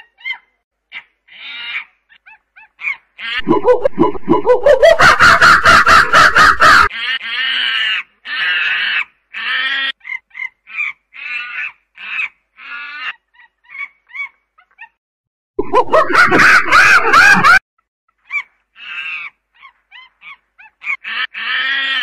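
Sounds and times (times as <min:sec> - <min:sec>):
monkey calls: 0:00.0 - 0:15.0
monkey chattering cries: 0:05.2 - 0:15.0.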